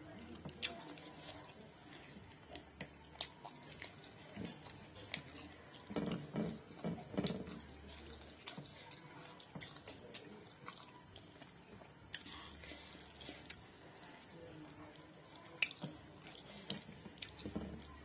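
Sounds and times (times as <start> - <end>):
chewing with wet mouth clicks: 2.4 - 5.9, 7.3 - 13.7, 15.3 - 17.4.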